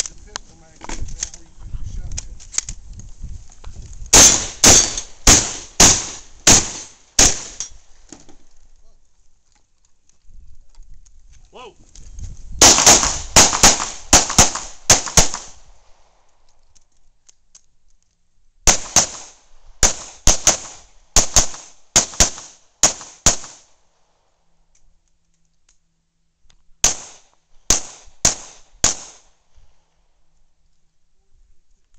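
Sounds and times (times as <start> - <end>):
handgun shots: 4.2 - 7.7, 26.8 - 29.2.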